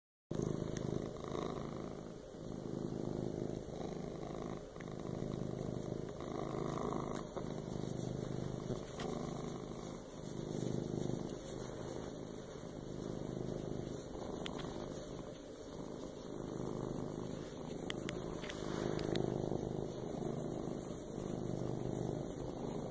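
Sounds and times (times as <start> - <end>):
cat purring: 0.3 - 22.9.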